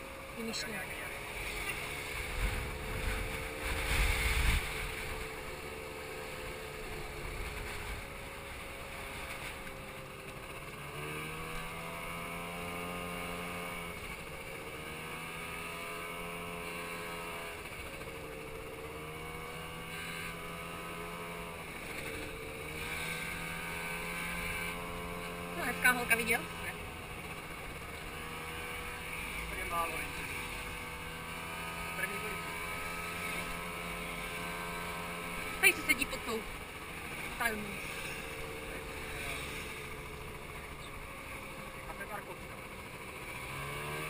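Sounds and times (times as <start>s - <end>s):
scooter engine running: 0.0s - 44.0s
wind rumble on microphone: 2.2s - 5.4s.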